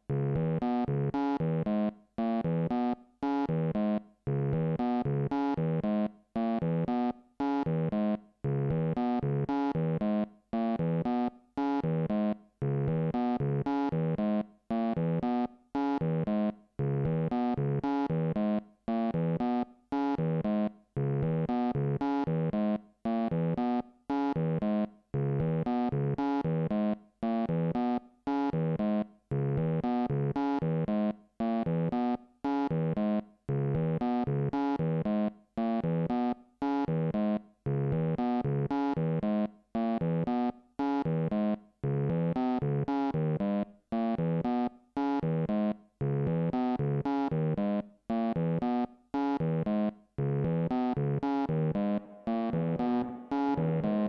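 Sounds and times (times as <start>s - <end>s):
sequenced synth short notes: 50.5s - 54.0s.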